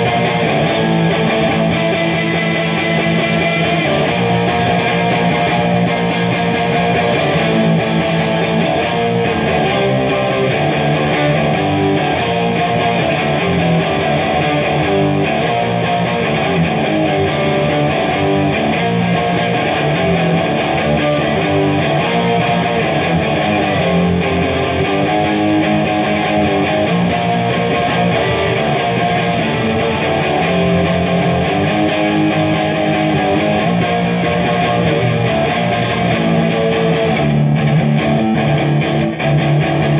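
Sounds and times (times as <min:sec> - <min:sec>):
electric guitar chords: 0:00.0 - 0:39.9.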